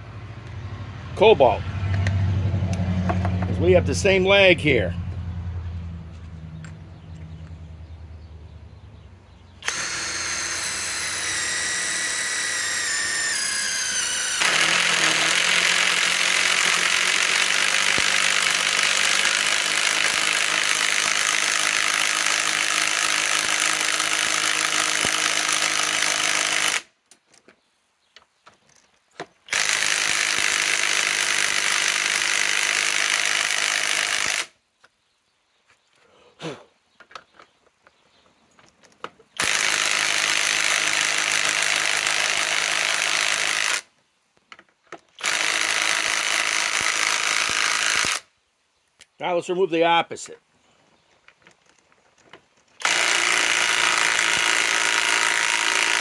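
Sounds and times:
impact wrench motor spinning: 0:09.6 - 0:26.8, 0:29.5 - 0:34.5, 0:39.4 - 0:43.9, 0:45.2 - 0:48.2, 0:52.8 - 0:56.0
impact wrench hammering: 0:14.0 - 0:26.8, 0:52.8 - 0:56.0.

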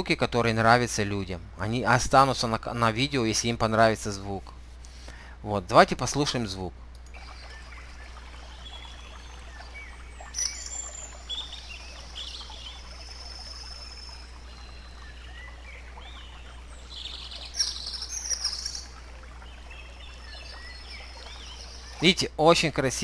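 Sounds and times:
babbling stream water: 0:05.5 - 0:23.0
songbirds singing: 0:06.8 - 0:23.0.

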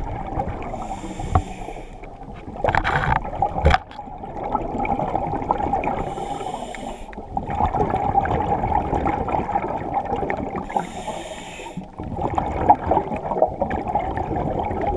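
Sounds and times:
diver breathing through regulator: 0:00.7 - 0:02.1, 0:06.0 - 0:07.2, 0:10.6 - 0:12.0.

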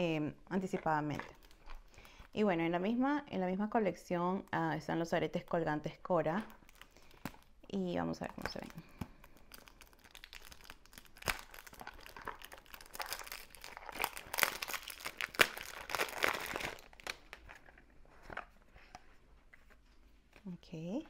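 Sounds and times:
packaging crinkling and rustling: 0:01.1 - 0:02.2, 0:06.5 - 0:07.6, 0:08.2 - 0:18.6.

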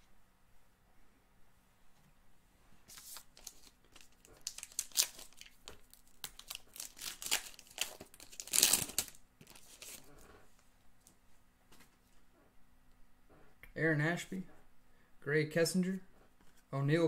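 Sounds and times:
wrapper tearing and crinkling: 0:02.9 - 0:10.1.

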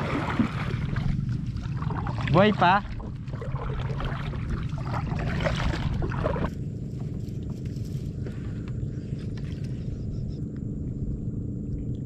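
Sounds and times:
kayak paddle splashing water: 0:00.0 - 0:06.6
water running off paddle: 0:00.0 - 0:06.6
steady low rumble: 0:00.0 - 0:12.0.

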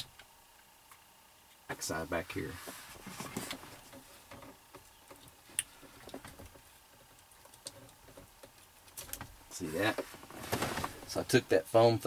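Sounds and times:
wires rustling: 0:02.2 - 0:11.4.

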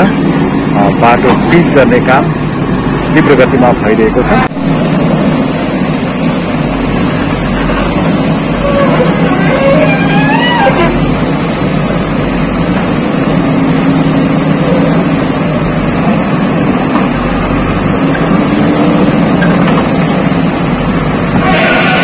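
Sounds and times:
diesel engine running: 0:00.0 - 0:22.0
backhoe arm digging: 0:21.4 - 0:22.0.

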